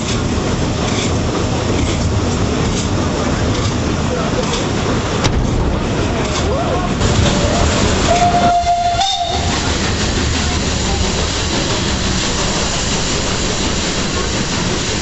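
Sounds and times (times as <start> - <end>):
train carriage rumble and rattle: 0.0 - 15.0
steam whistle blast: 8.1 - 9.5.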